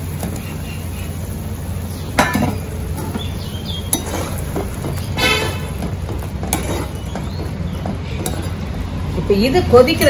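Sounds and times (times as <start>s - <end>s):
utensil clinking on cooking pan: 2.2s - 8.7s.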